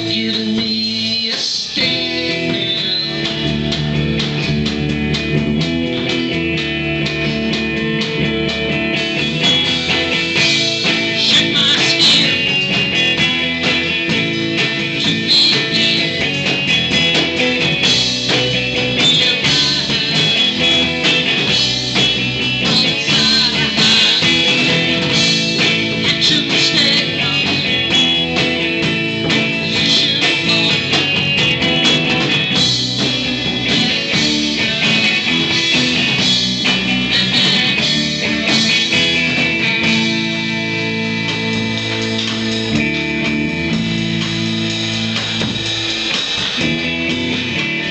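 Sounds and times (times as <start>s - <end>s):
drum kit: 0.0s - 47.9s
electric guitar: 0.0s - 47.9s.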